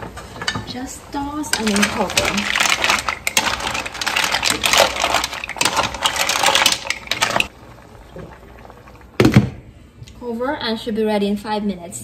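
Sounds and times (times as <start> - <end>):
mussel shells clattering in pot: 0.4 - 7.5.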